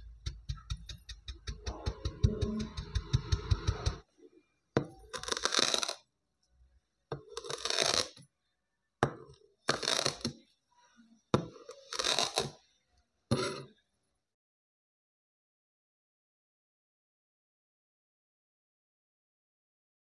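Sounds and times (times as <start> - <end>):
blade tapping hard surface: 0.0 - 4.0.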